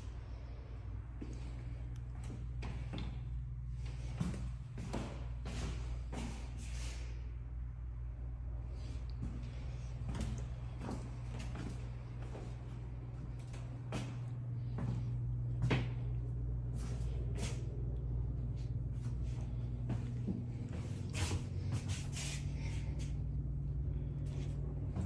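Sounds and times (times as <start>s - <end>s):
steady low hum: 0.0s - 25.0s
footsteps on tile floor: 19.0s - 22.5s.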